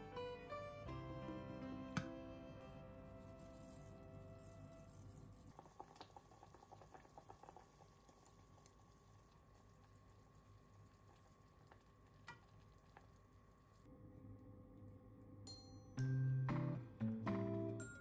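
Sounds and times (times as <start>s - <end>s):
faint steady hum: 0.0s - 18.0s
soup simmering: 3.0s - 13.9s.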